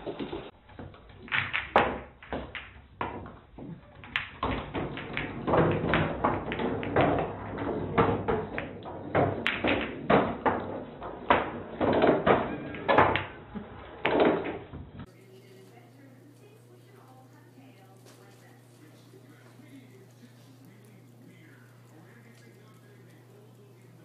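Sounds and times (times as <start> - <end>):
taps and knocks on hard surfaces: 0.8 - 13.4.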